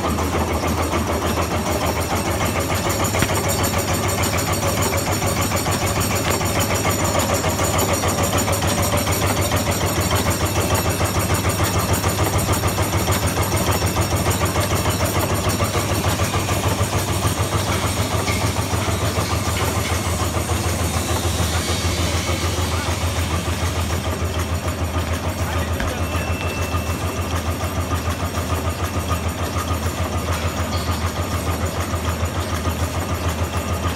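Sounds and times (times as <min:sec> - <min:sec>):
packing machine clattering: 0:00.3 - 0:20.6.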